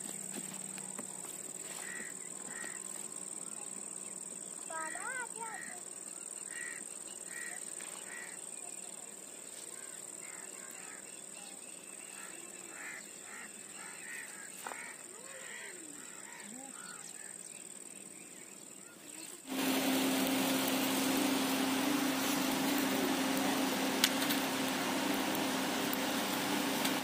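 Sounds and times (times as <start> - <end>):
birds calling: 0.0 - 27.0
loud steady rushing noise: 19.5 - 27.0.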